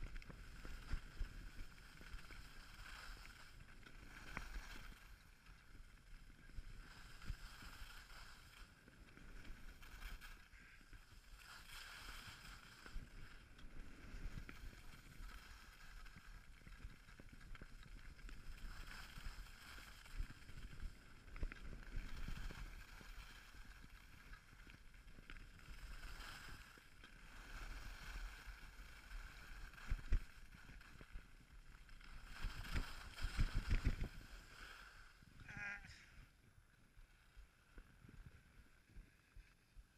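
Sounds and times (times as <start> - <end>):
skis thumping on rough snow: 0.0 - 35.2
skis scraping over snow: 0.0 - 36.1
wind on microphone: 32.2 - 36.3.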